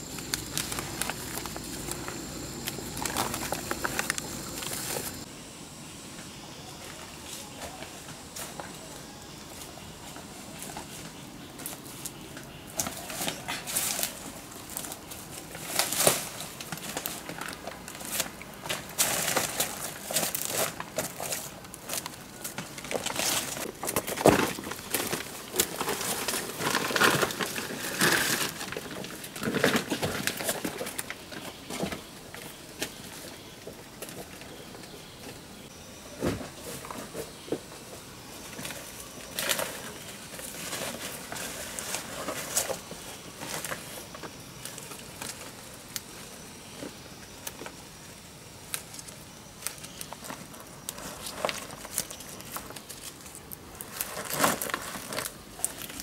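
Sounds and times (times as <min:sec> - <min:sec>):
boots crunching dry leaves: 0:00.0 - 0:05.3.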